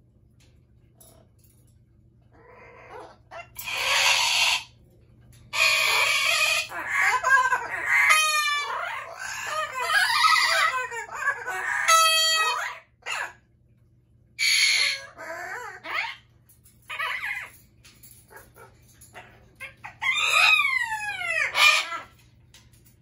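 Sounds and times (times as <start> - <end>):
parrots screeching and squawking: 2.3 - 4.8, 5.5 - 13.4, 14.4 - 22.7
sharp parrot calls: 2.9 - 4.7, 5.6 - 13.4, 14.4 - 16.2, 19.8 - 22.1.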